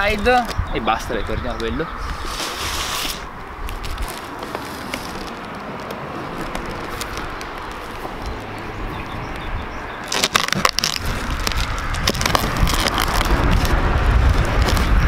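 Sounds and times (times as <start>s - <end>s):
tape and cardboard rustling: 2.0s - 8.5s, 10.0s - 15.0s
knife slitting packing tape: 2.1s - 5.3s, 10.1s - 15.0s.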